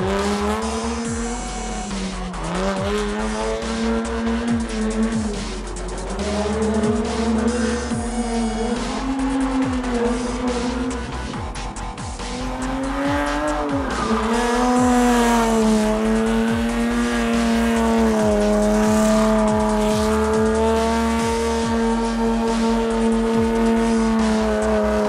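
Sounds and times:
background music beat: 0.0s - 25.0s
car engine at high revs: 0.0s - 25.0s.

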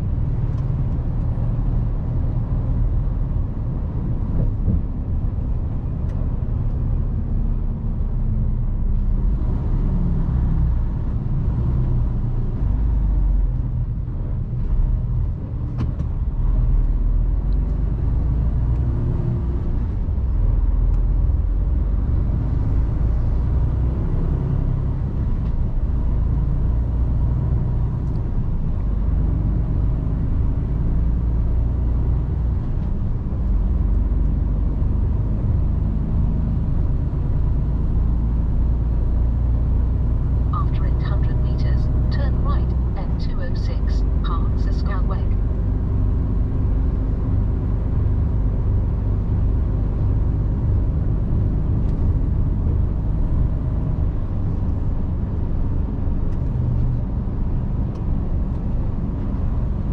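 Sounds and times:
road noise: 0.0s - 59.9s
truck diesel engine running: 40.2s - 45.9s.

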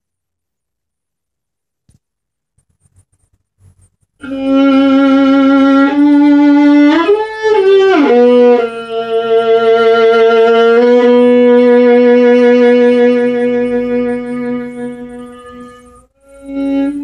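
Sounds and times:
solo violin bowed: 4.2s - 17.0s.

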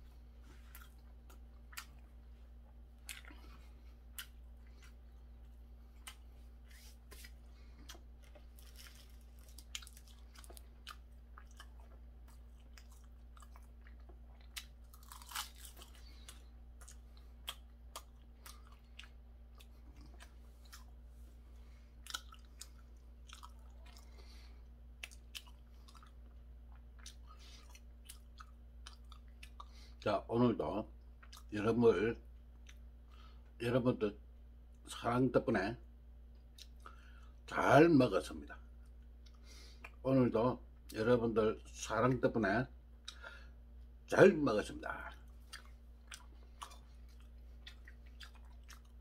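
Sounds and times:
person chewing food: 0.0s - 30.0s, 31.0s - 31.5s, 36.3s - 37.4s, 45.1s - 49.0s
faint low hum: 0.0s - 49.0s.

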